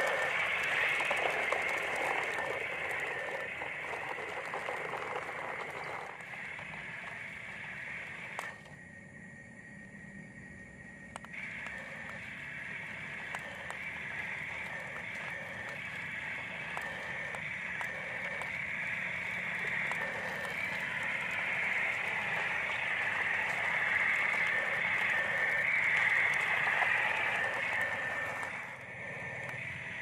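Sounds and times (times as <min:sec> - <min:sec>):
toy truck motor whirring: 0:00.0 - 0:08.8, 0:11.2 - 0:30.0.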